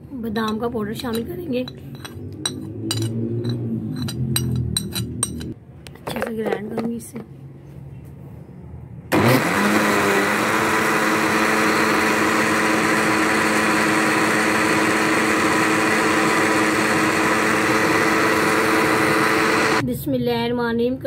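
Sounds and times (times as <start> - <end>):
electric blender running: 9.1 - 19.8.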